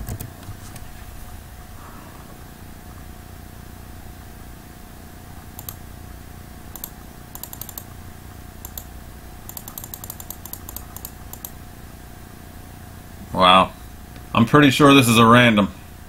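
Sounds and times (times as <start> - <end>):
computer keyboard typing: 0.0 - 0.4, 5.6 - 5.8, 6.7 - 7.9, 8.6 - 8.9, 9.5 - 11.6
steady low hum: 0.0 - 16.0.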